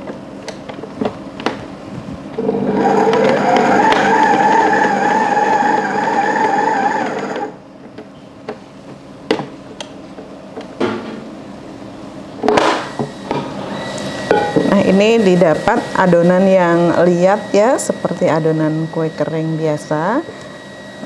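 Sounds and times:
stand mixer motor whining: 2.4s - 7.6s.

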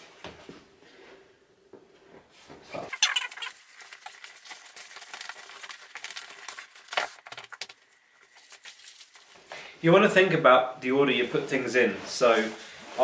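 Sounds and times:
synthetic fabric rustling: 2.9s - 9.4s.

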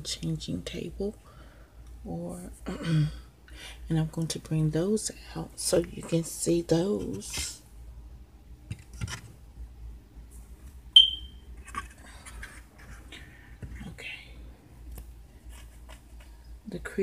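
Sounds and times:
sharp high ringing ping: 11.0s - 11.4s.

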